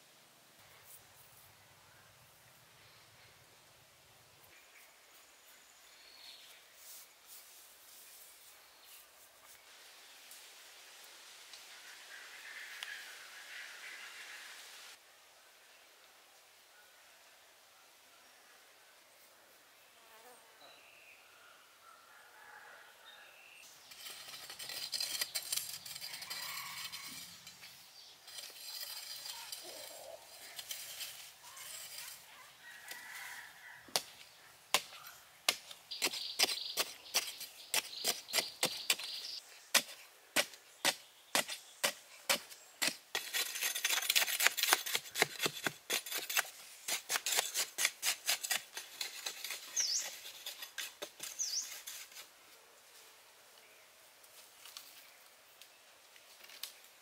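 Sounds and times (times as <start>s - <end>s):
digging tool scraping soil: 23.8s - 33.4s, 34.8s - 52.3s
digging tool striking soil: 33.9s - 52.0s.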